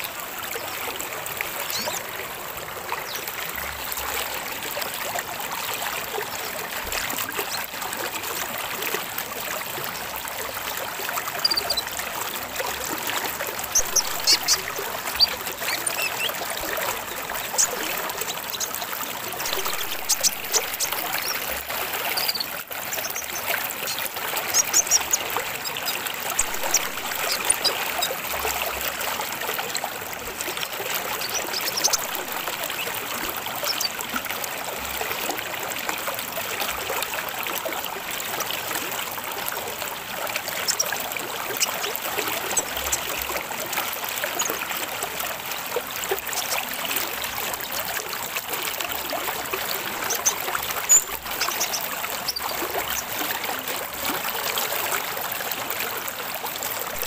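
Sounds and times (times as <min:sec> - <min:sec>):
trickle of running water: 0:00.0 - 0:57.0
bird high chirps: 0:13.8 - 0:16.4, 0:22.1 - 0:28.2.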